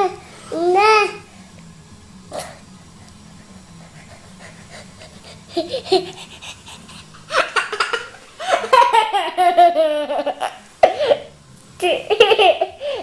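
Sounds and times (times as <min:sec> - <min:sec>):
toddler laughing: 0:05.5 - 0:11.2, 0:11.8 - 0:13.0.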